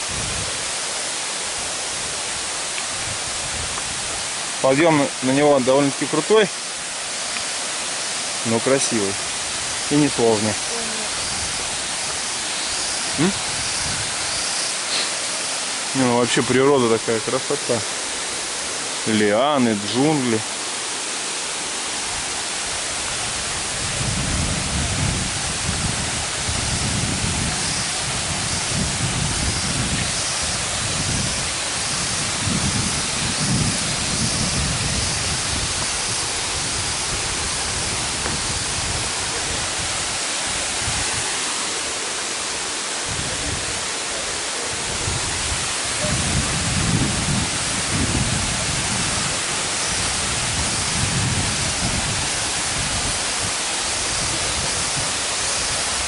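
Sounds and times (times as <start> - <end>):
waterfall rushing over rock: 0.0 - 56.0.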